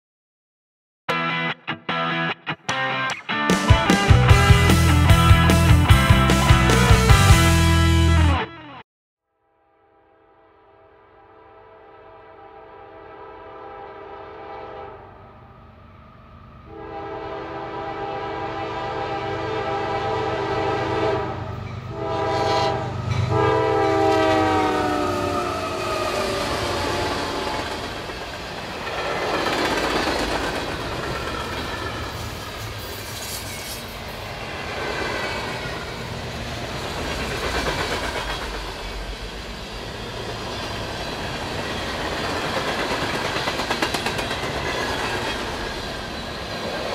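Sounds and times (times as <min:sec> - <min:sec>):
train air horn: 0:09.6 - 0:15.4, 0:16.7 - 0:27.9.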